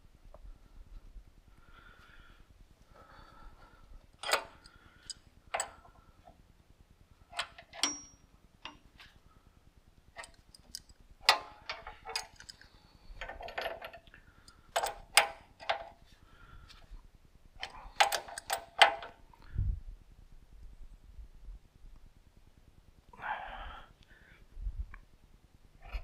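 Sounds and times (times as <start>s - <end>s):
tools knocking and clinking: 4.2s - 4.7s, 5.5s - 5.8s, 7.3s - 8.9s, 10.2s - 12.6s, 13.2s - 14.1s, 14.7s - 16.0s, 17.6s - 19.1s.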